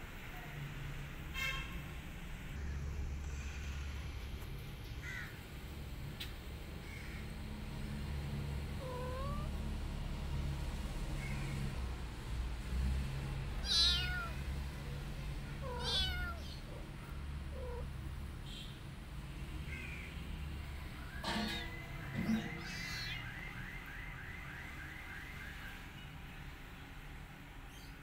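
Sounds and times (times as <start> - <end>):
kittens meowing: 8.8 - 9.6, 13.6 - 14.5, 15.5 - 16.9, 17.5 - 18.0, 22.2 - 23.2.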